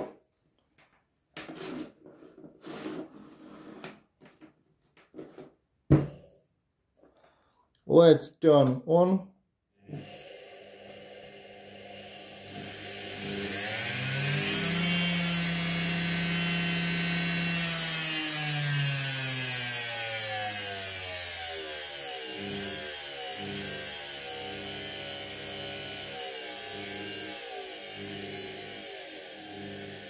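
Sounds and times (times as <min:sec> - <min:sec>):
electric motor whining: 0:09.9 - 0:30.0.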